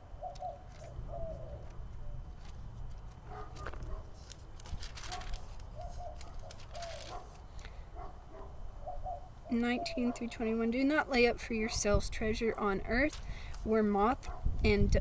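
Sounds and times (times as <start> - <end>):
bird calling low notes: 0.0 - 2.3
low outdoor rumble: 0.0 - 15.0
rustling: 0.4 - 8.1.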